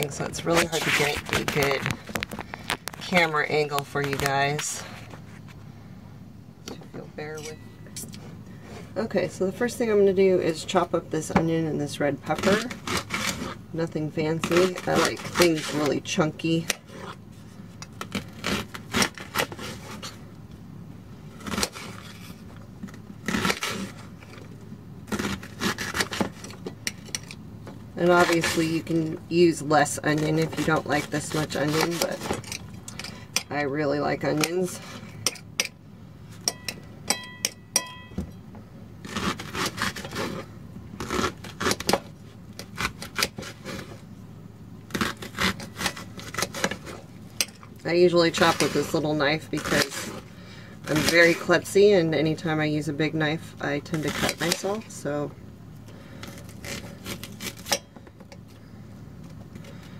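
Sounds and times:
knife cutting through onion: 39.0 - 44.0.

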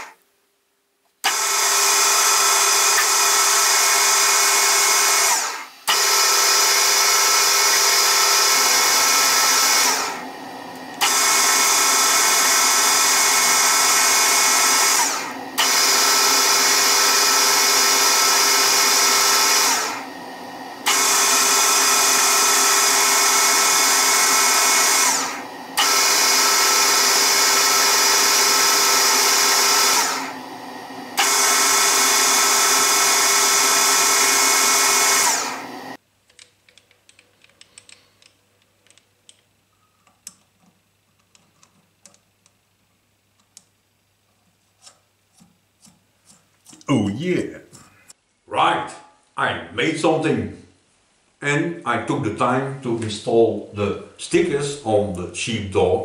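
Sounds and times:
metal lathe whining: 1.2 - 36.0
metal clicks and taps: 36.2 - 42.6.

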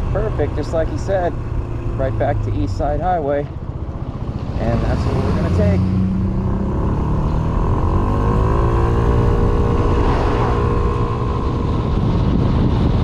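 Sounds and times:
wind rushing over microphone: 3.6 - 13.0.

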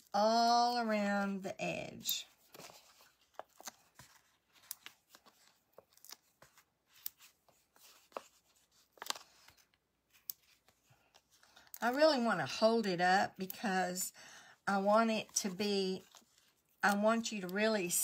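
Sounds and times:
paper rustling: 2.0 - 11.8, 15.2 - 17.6.

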